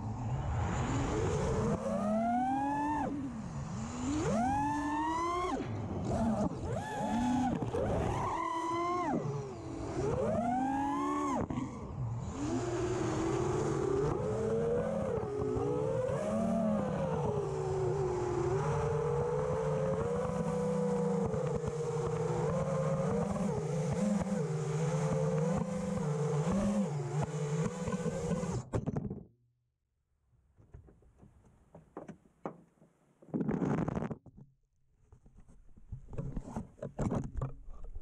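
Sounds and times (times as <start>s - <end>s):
quadcopter motors whining: 0.3s - 28.7s.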